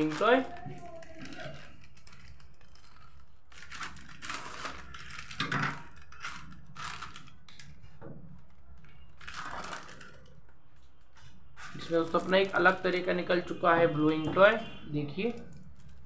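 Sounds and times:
snack packet crinkling: 0.0 - 7.8, 8.4 - 10.9.

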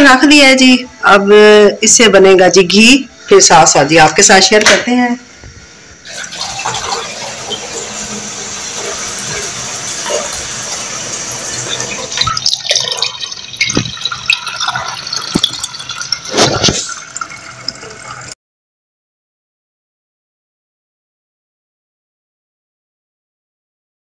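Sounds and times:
liquid pouring into plastic bottle: 11.2 - 18.4.

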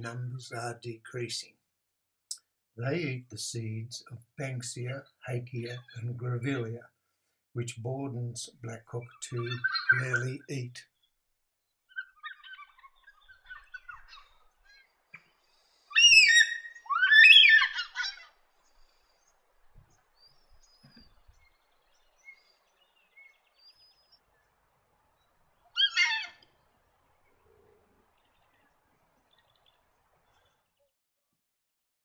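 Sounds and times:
cockatoos chattering: 7.9 - 10.8, 11.9 - 15.0, 15.7 - 18.4, 25.7 - 26.4
cockatoo calls: 9.3 - 10.4, 11.9 - 14.9, 15.9 - 18.4, 25.7 - 26.5.

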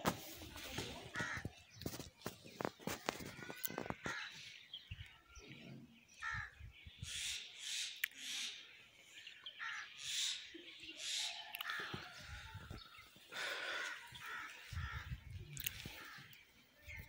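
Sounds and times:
crows cawing: 1.1 - 1.6, 3.1 - 4.5, 6.2 - 6.6, 9.6 - 10.2, 13.3 - 16.4.

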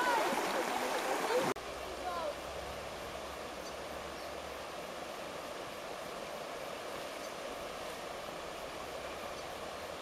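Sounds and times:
river rapids rushing over rocks: 0.0 - 2.3.

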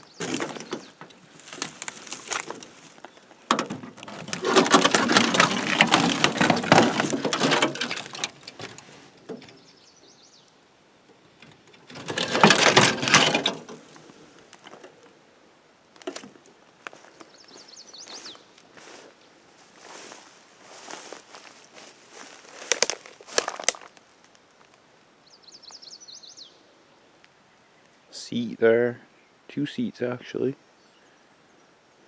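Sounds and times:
bird chirping: 0.0 - 1.3, 9.4 - 10.6, 16.9 - 18.6, 25.2 - 29.4
crackling footsteps: 0.0 - 9.6, 11.4 - 15.2, 15.9 - 24.9.

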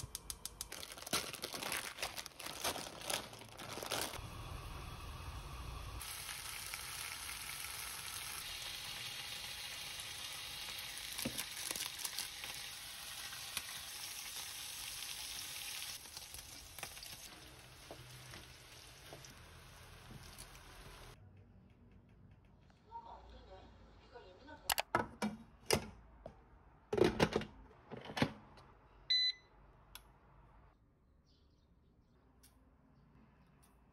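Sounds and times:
noodles sizzling in a pan: 0.0 - 21.2.

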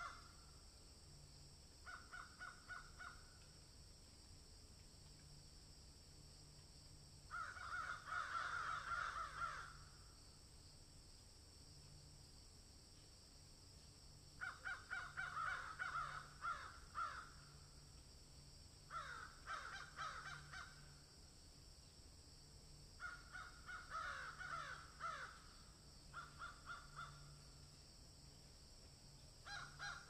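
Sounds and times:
crows cawing: 0.0 - 0.4, 1.8 - 3.4, 7.3 - 10.0, 14.4 - 17.6, 18.9 - 21.0, 23.0 - 27.4, 29.4 - 30.0.

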